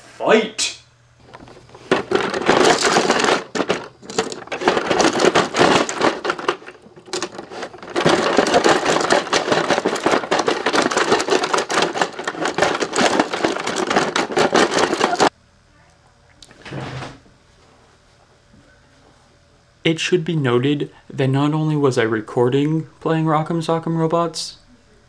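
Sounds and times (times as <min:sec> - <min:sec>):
plastic toy robots clacking: 0:01.9 - 0:15.3.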